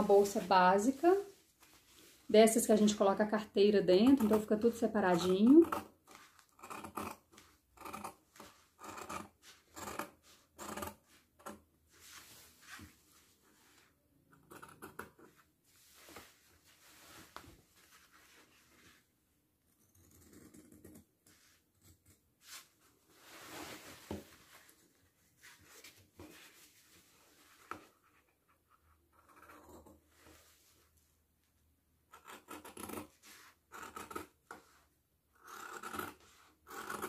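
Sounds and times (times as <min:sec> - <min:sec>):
fabric rustling: 0:00.0 - 0:03.0, 0:11.9 - 0:14.0, 0:15.6 - 0:19.2, 0:22.4 - 0:27.8
scissors cutting fabric: 0:03.9 - 0:11.6, 0:32.1 - 0:34.6, 0:35.4 - 0:37.0.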